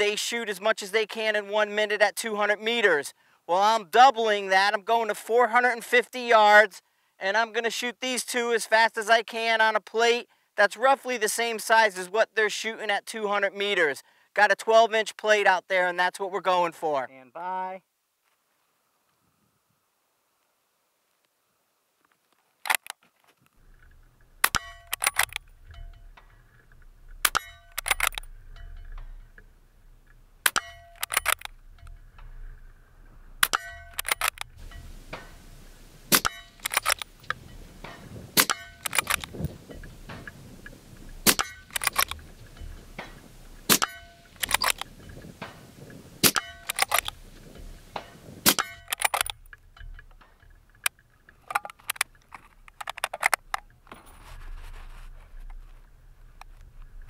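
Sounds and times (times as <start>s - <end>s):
rifle bolt clicks: 22.6s - 23.0s, 24.4s - 25.8s, 27.1s - 28.3s, 30.4s - 32.0s, 33.4s - 35.4s, 36.1s - 40.3s, 41.2s - 45.6s, 46.2s - 47.2s, 48.0s - 53.7s
suppressed rifle shots: 24.4s - 25.9s, 27.1s - 28.4s, 33.4s - 40.4s, 41.1s - 45.6s, 46.2s - 50.0s.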